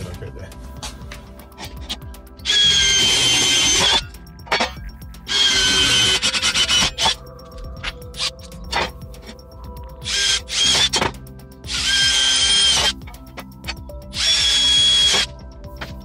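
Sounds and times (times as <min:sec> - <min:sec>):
cordless drill whining through metal: 0:01.6 - 0:09.4, 0:10.0 - 0:16.0.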